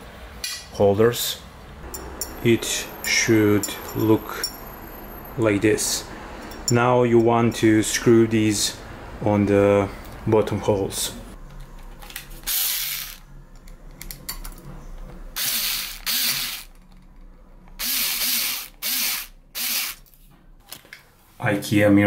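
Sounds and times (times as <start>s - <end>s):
power screwdriver driving screws: 12.5s - 13.2s, 15.4s - 16.8s, 17.8s - 20.0s.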